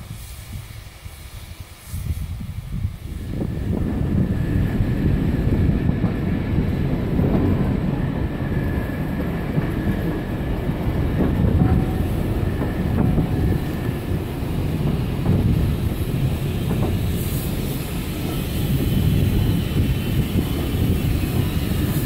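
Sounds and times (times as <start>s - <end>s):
steam locomotive rumble: 0.0s - 22.0s.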